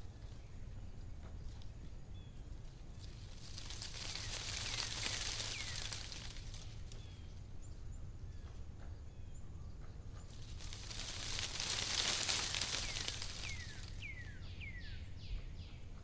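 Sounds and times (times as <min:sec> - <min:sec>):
faint bird chirps: 0:00.0 - 0:16.0
hissing rustling swell: 0:03.1 - 0:07.0, 0:10.3 - 0:14.4.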